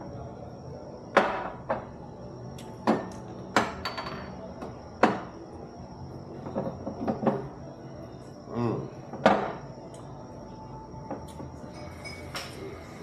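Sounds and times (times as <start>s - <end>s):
dishes knocking on table: 5.0s - 5.3s, 9.1s - 9.6s.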